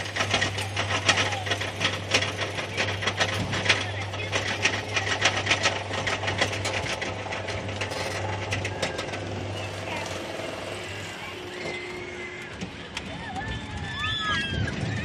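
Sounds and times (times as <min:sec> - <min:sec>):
lift chain clacking: 0:00.0 - 0:14.6.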